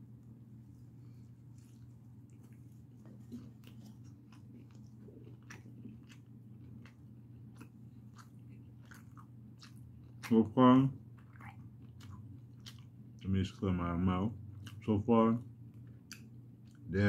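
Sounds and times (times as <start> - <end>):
low steady hum: 0.0 - 17.0
chewing mouth clicks: 1.5 - 10.4, 11.2 - 13.3, 15.8 - 16.9.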